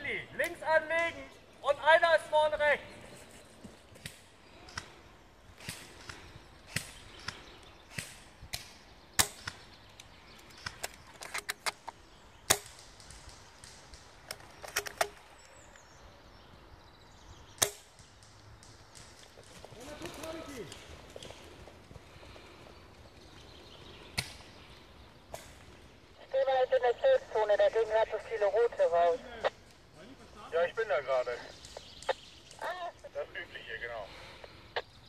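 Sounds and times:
airsoft guns firing: 0:05.6 - 0:09.7, 0:12.4 - 0:15.2, 0:17.6 - 0:19.2.

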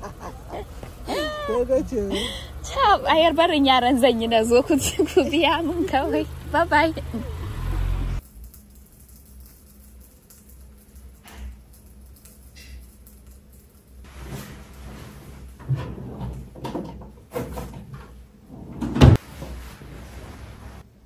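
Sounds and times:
household knocks and shuffles: 0:14.1 - 0:20.8.

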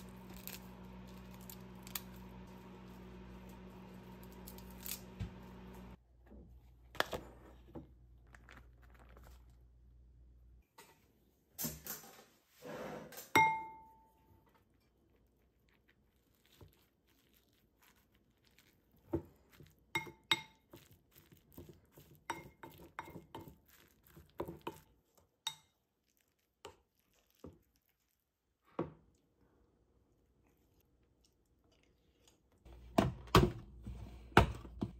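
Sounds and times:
spoon clinking on bowl: 0:13.4 - 0:13.9, 0:20.0 - 0:20.6.

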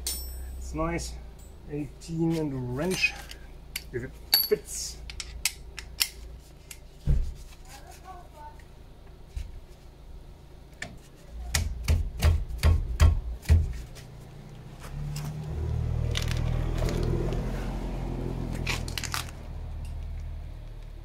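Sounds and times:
sharp metallic knocks: 0:04.4 - 0:04.7.

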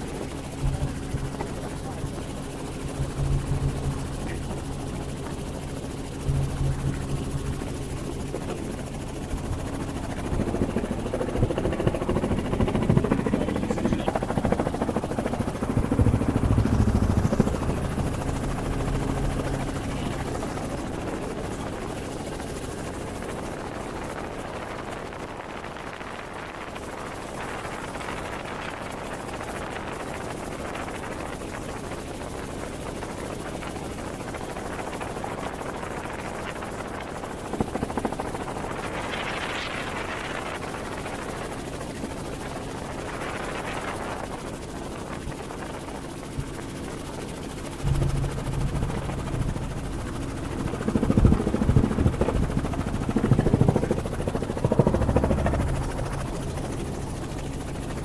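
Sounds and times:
helicopter rotor and engine drone: 0:00.0 - 0:58.0
low rumbling bursts: 0:47.8 - 0:56.6.

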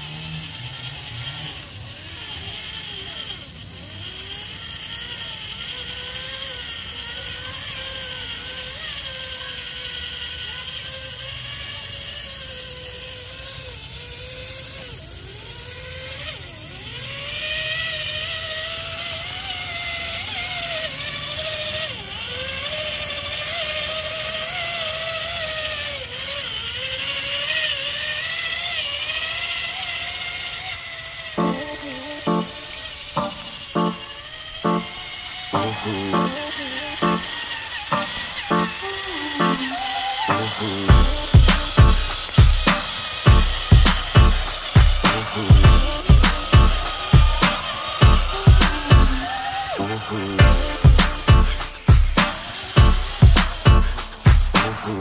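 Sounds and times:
electric motor and gears whining: 0:00.0 - 0:55.0
steady hiss: 0:31.4 - 0:55.0.

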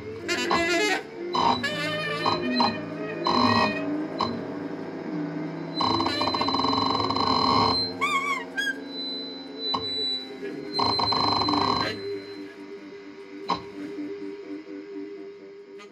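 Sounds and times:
buzzing squealing noise music: 0:00.0 - 0:15.9
warbling tone: 0:00.4 - 0:12.5.

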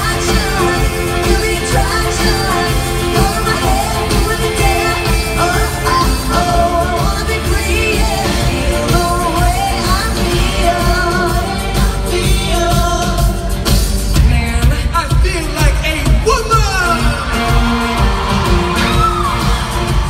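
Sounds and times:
woman singing into microphone: 0:00.0 - 0:13.4
drums: 0:00.0 - 0:20.0
heavy bass: 0:00.0 - 0:20.0.

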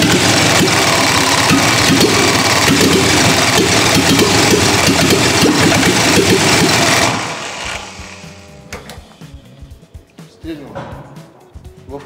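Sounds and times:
engine cranking on starter: 0:00.0 - 0:09.1
engine firing unevenly: 0:00.0 - 0:09.4.

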